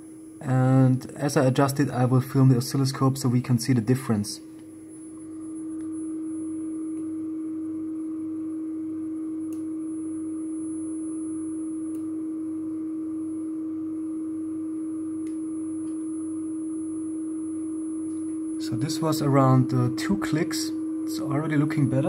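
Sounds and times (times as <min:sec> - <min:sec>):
steady low test tone: 0:00.0 - 0:22.0.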